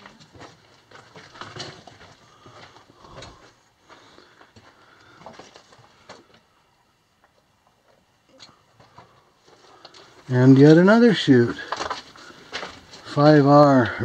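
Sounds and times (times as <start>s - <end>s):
footsteps crunching on gravel: 11.5s - 13.9s.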